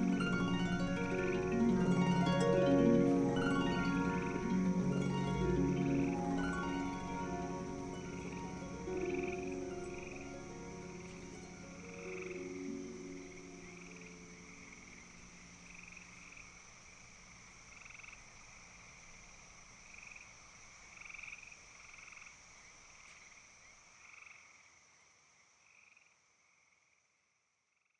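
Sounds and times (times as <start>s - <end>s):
background music: 0.0s - 16.0s
steady high hiss: 0.0s - 26.5s
frogs trilling: 0.0s - 27.0s.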